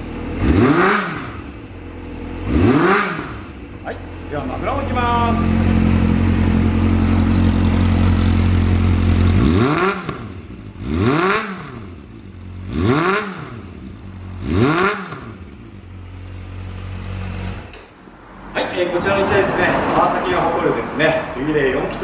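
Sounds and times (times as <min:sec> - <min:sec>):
motorcycle engine idling: 0:00.0 - 0:00.5, 0:01.4 - 0:18.0
engine revving: 0:00.0 - 0:22.0.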